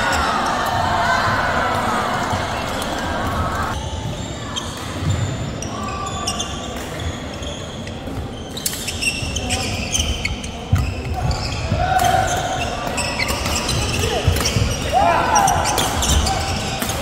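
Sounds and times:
shoe squeaks on court floor: 3.9s - 14.9s, 15.6s - 17.0s.

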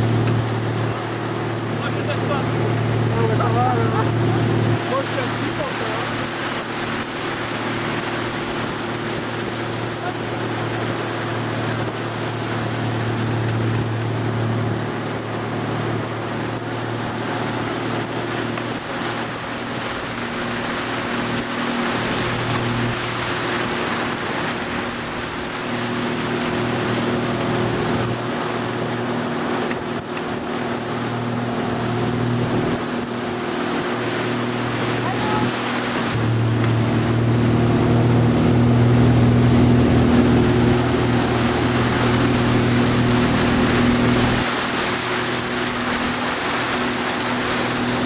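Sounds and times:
boat engine hum: 0.0s - 48.0s
churning water: 0.0s - 48.0s.

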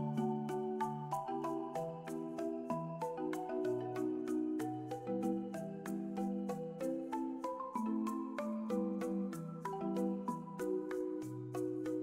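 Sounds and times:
background music melody: 0.0s - 12.0s.

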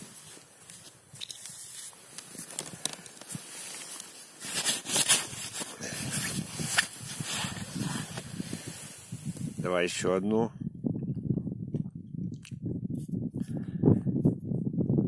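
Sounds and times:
snow crunching and scraping: 0.0s - 9.6s.

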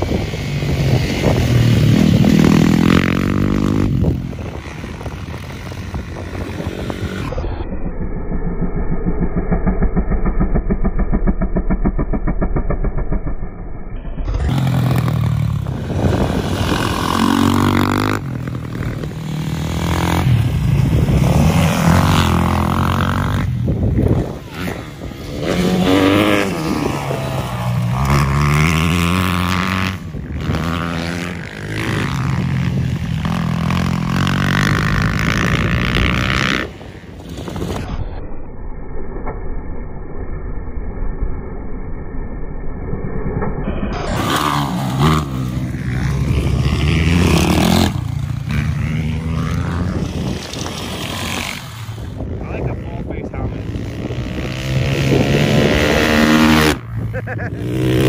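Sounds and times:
dirt bike engines revving: 0.0s - 7.6s, 14.1s - 38.0s, 43.6s - 58.0s.

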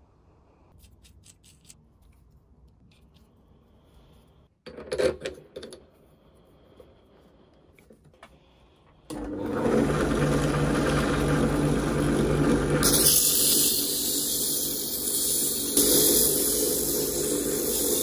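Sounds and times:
drill press motor running: 9.1s - 14.0s
sandpaper hissing on spinning metal: 12.8s - 18.0s.

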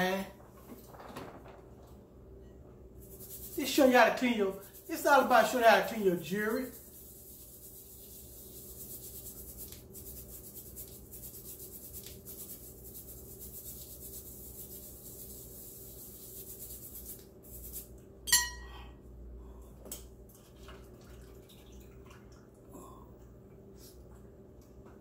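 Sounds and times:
toothbrush scrubbing: 3.0s - 17.9s
sharp ringing clink: 18.3s - 18.8s.

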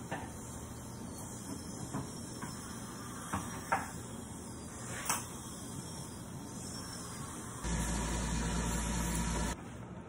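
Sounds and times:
steady hiss: 0.0s - 9.6s.

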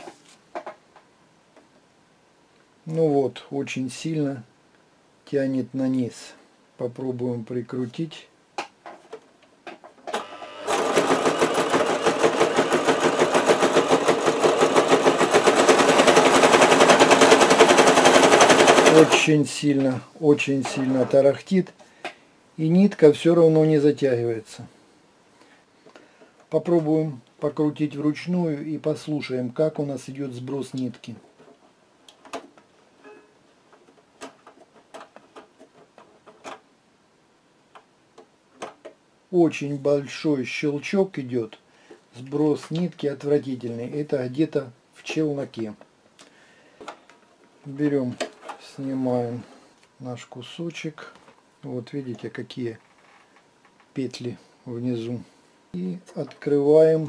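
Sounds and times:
sewing machine clattering: 10.1s - 19.3s.

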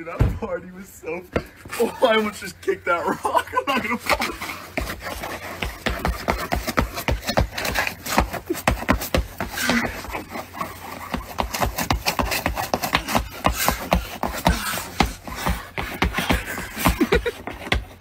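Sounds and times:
shoes scraping on icy concrete: 3.6s - 18.0s.

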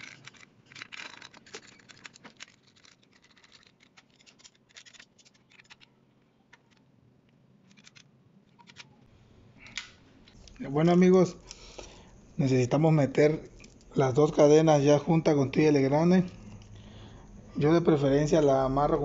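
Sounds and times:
faint metallic clicks and scrapes: 0.0s - 10.6s.

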